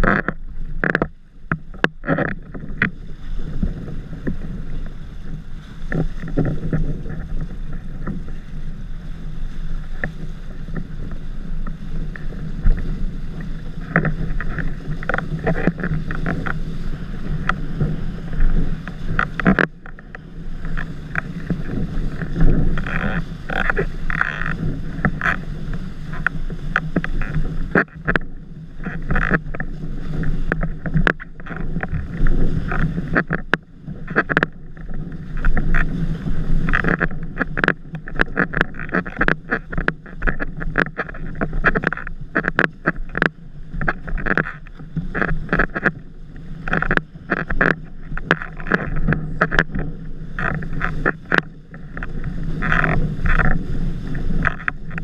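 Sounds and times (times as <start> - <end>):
water rushing and spraying: 0.0 - 55.0
wind buffeting microphone: 0.0 - 55.0.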